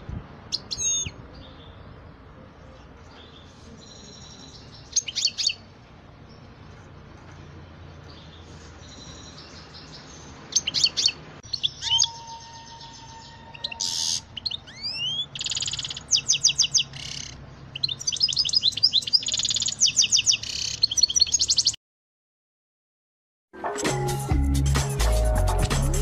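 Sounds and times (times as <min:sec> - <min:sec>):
finch twittering trills: 0:08.1 - 0:21.8.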